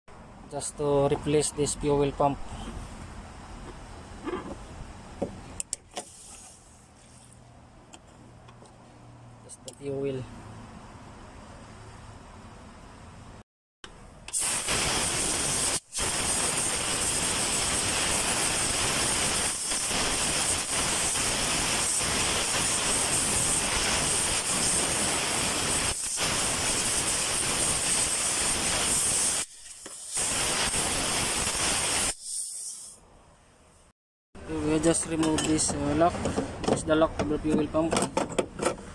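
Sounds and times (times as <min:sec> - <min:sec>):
compressed-air blow gun hissing: 0:14.3 - 0:33.0.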